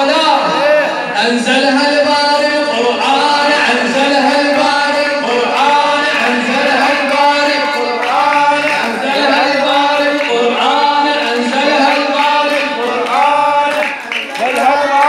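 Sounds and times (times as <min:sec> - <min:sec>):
man singing a devotional chant: 0:00.0 - 0:15.0.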